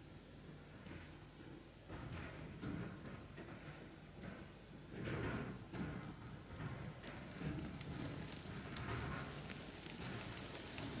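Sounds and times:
model train wheels clicking: 0:06.6 - 0:11.0.

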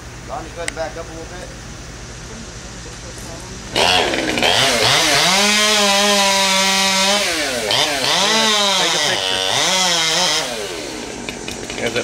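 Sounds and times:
chainsaw revving: 0:03.7 - 0:12.0.

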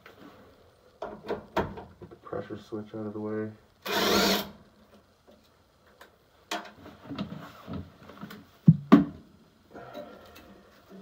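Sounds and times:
cordless drill running: 0:03.8 - 0:04.5.

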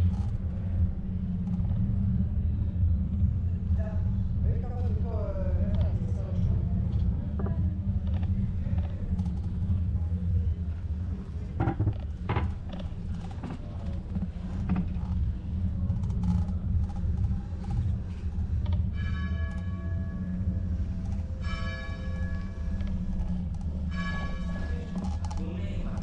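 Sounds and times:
bicycle clicks and creaks: 0:00.0 - 0:02.2, 0:06.9 - 0:26.0
wind rumble on microphone: 0:00.0 - 0:21.6
church bell ringing: 0:18.9 - 0:23.1, 0:23.8 - 0:25.0.

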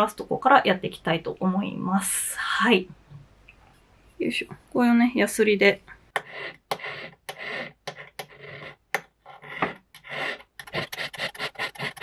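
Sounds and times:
hand file scraping metal: 0:06.2 - 0:12.0.

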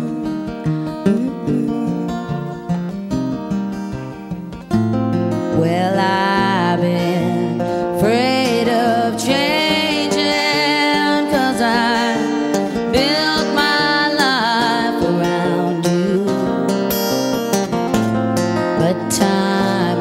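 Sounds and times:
person singing long sliding notes: 0:00.0 - 0:03.0, 0:05.5 - 0:17.1, 0:18.7 - 0:20.0
acoustic guitar strumming: 0:00.0 - 0:20.0.

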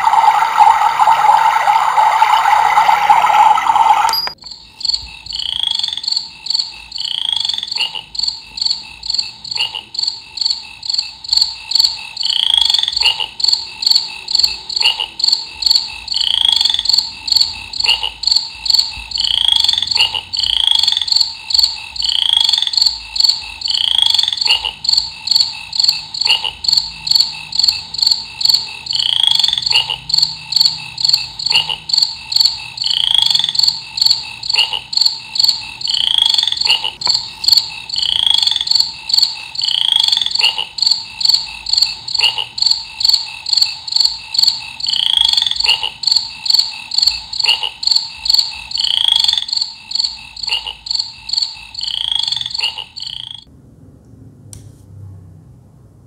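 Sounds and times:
rising frog-like call: 0:00.0 - 0:04.4, 0:19.2 - 0:53.5
crickets chirping: 0:00.0 - 0:53.5.

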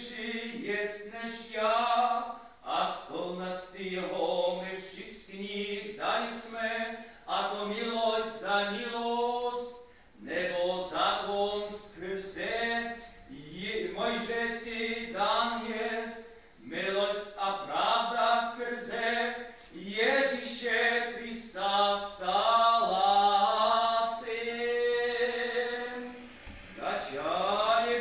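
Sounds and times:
voices chanting: 0:20.0 - 0:28.0.

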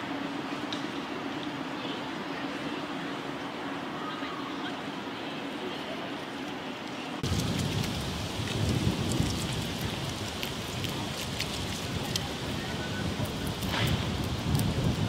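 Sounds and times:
shells and dry leaves crackling: 0:07.2 - 0:15.0.

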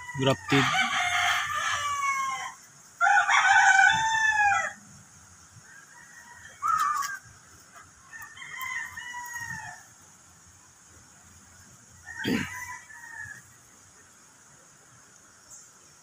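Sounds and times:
rooster crowing: 0:00.0 - 0:04.8, 0:05.6 - 0:07.4, 0:08.0 - 0:09.9, 0:12.0 - 0:13.7.

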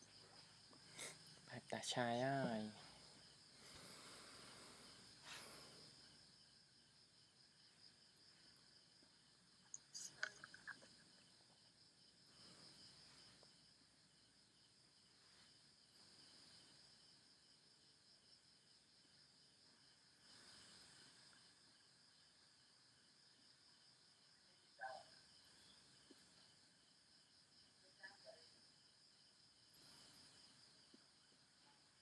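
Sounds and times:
insects chirring: 0:00.0 - 0:32.0.

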